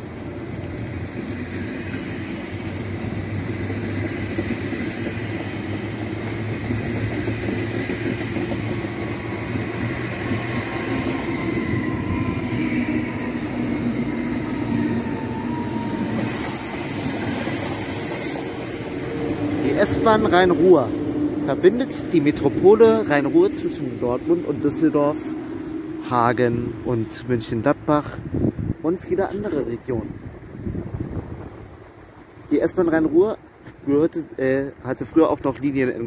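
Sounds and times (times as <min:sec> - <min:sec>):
train wheels rumbling on rail: 0:00.0 - 0:36.0
high-pitched squeal: 0:10.1 - 0:27.0.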